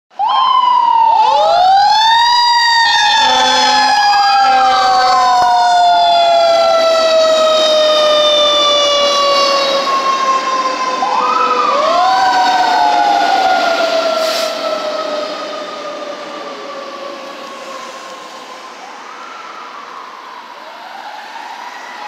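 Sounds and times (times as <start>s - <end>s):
fire engine sirens wailing: 0.1s - 22.0s
low horn blasts: 3.1s - 5.5s.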